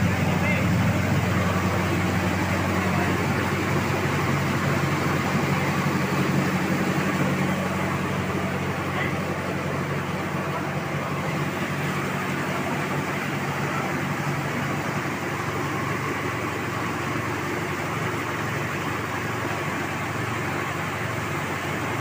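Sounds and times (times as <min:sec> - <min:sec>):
milling machinery humming: 0:00.0 - 0:22.0.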